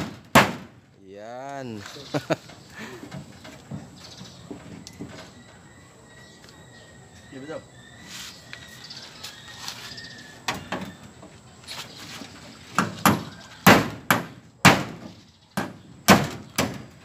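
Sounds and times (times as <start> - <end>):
hammer striking nail into metal sheet: 0.0 - 0.7.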